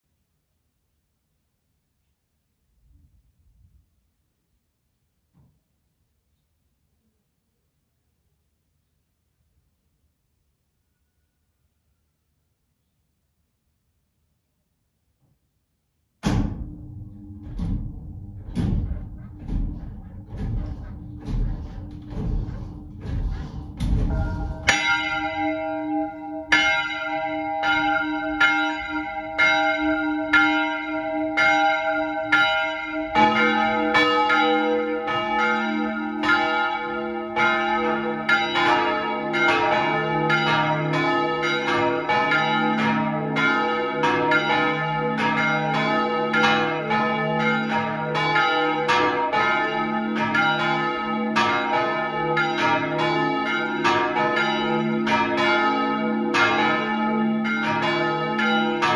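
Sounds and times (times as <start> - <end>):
church bells ringing: 24.0 - 58.9.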